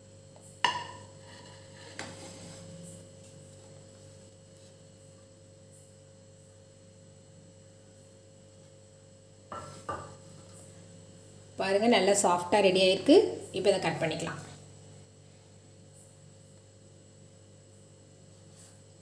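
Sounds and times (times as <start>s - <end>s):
faint electrical hum: 0.0s - 19.0s
ceramic plate knocking: 0.6s - 1.1s, 9.5s - 10.2s.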